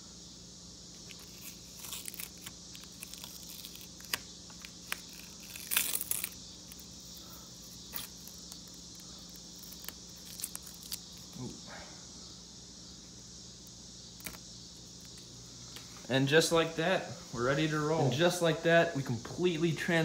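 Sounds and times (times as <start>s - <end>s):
crickets chirring: 0.0s - 20.0s
rubbery coating peeling and tearing: 1.0s - 11.4s, 14.2s - 15.2s.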